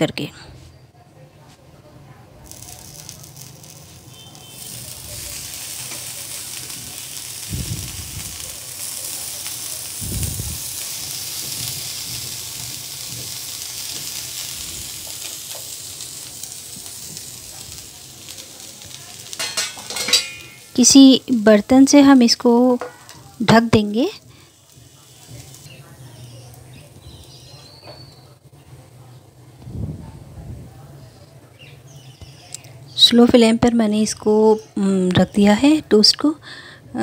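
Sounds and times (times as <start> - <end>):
bread sizzling on hot iron pan: 2.4 - 29.4.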